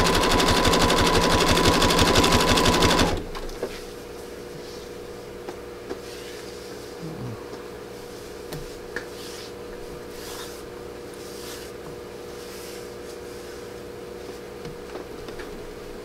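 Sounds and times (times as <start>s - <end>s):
steady low hum: 3.5s - 16.0s
rope rubbing and rustling: 8.0s - 13.8s.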